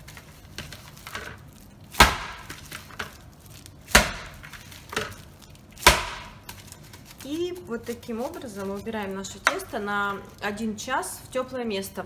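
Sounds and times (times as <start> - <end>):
dough slapping into bowl: 0.0 - 3.2, 3.8 - 7.4.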